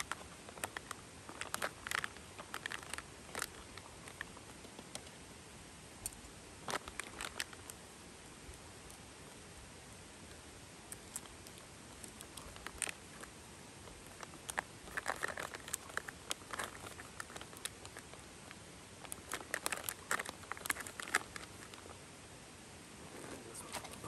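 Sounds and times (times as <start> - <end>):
crinkling and rustling: 0.0 - 5.2, 6.0 - 7.8, 10.9 - 22.0, 23.0 - 24.0.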